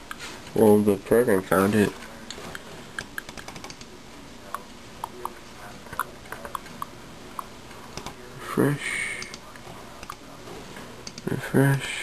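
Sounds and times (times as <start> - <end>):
keyboard key clicks: 3.0 - 3.9.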